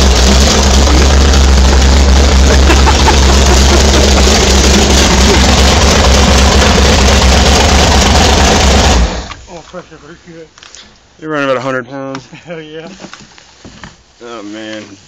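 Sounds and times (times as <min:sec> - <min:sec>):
boat engine rumbling: 0:00.0 - 0:09.8.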